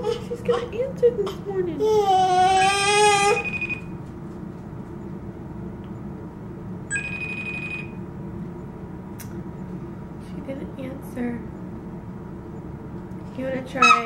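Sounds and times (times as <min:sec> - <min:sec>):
low background hum: 0:00.0 - 0:14.0
smartphone electronic tone: 0:03.4 - 0:03.9, 0:06.9 - 0:08.0
sharp click: 0:09.2 - 0:09.4.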